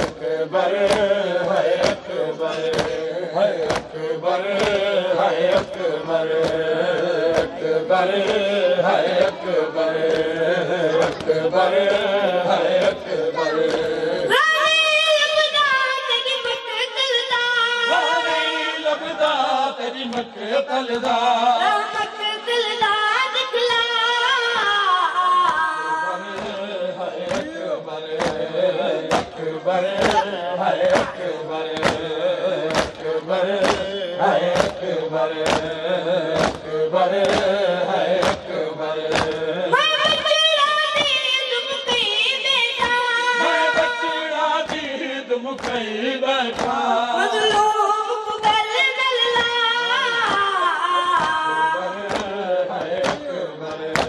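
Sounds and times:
chest-beating slaps: 0.0s - 8.5s, 10.0s - 14.0s, 26.3s - 26.6s, 27.2s - 40.4s, 44.6s - 44.9s, 45.5s - 45.9s, 46.5s - 46.8s, 52.0s - 54.0s
boy singing a lament: 0.0s - 54.0s
men and boys chanting: 0.0s - 54.0s.

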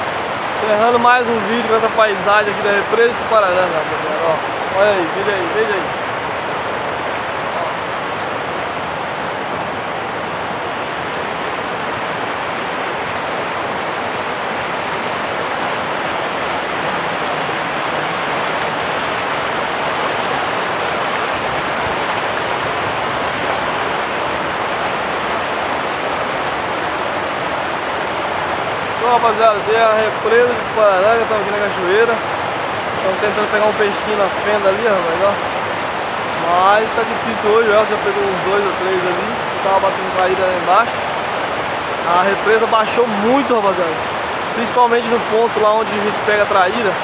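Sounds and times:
water rushing over rocks: 0.0s - 47.0s.

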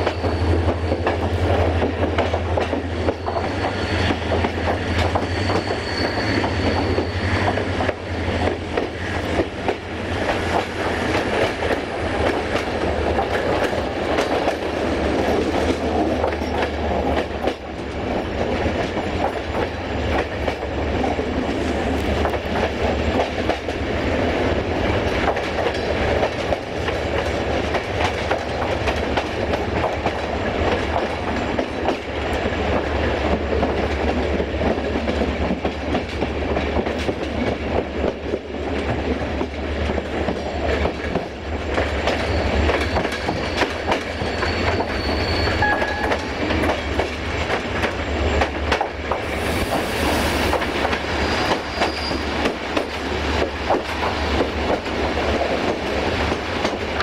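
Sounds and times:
high wheel squeals: 0.0s - 1.7s, 3.0s - 8.2s, 42.0s - 46.4s, 47.4s - 48.6s, 51.0s - 52.5s
wheels clacking over rail joints: 0.0s - 49.8s, 50.4s - 57.0s
train low rumble: 0.0s - 57.0s.

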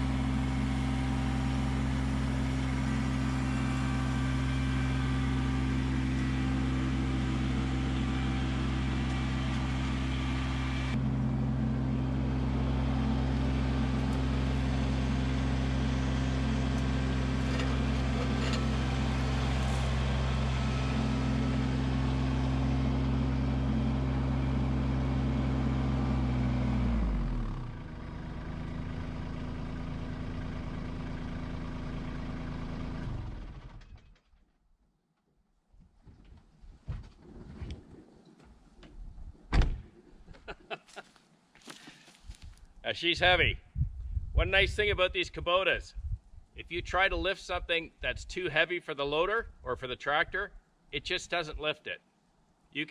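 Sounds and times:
tractor diesel engine running: 0.0s - 34.3s.

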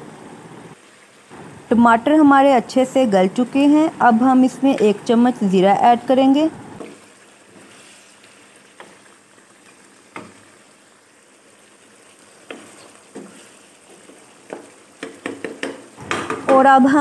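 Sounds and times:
curry bubbling and sizzling: 0.7s - 17.0s
wooden spatula knocking pan: 10.1s - 10.4s, 12.4s - 16.9s.

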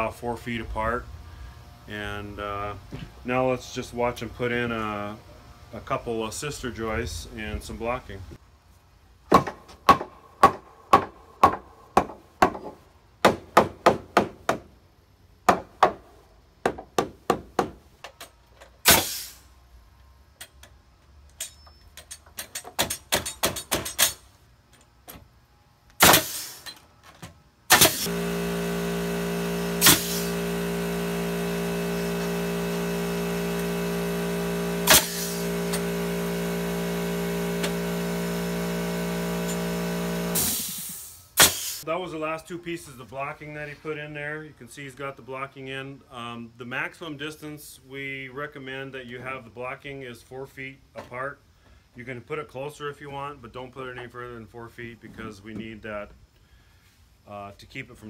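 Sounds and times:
hammer striking wood: 9.3s - 14.7s, 15.5s - 16.0s, 16.6s - 17.8s
pneumatic nailer shots: 18.8s - 19.5s, 22.4s - 24.2s, 26.0s - 26.8s, 27.7s - 41.8s
air compressor humming: 25.9s - 26.8s, 27.6s - 41.9s.

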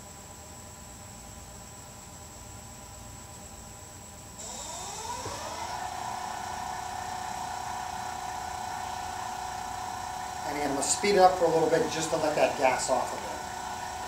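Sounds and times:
wood lathe motor whine: 4.4s - 14.0s.

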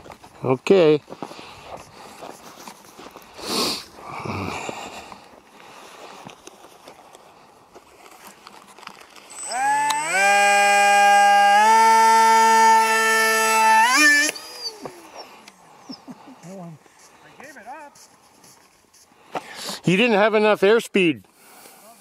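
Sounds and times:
model jet fan motor whine: 9.3s - 14.8s.

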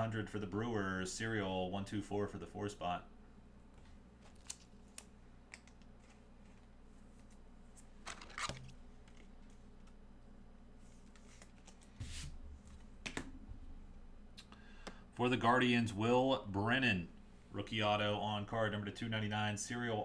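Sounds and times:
cards and packaging rustling: 4.2s - 9.6s, 10.9s - 12.3s.

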